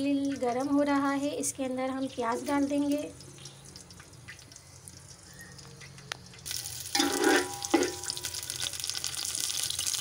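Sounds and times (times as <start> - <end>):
onions sizzling in oil: 6.4 - 10.0
spoon scraping pot: 7.0 - 8.0.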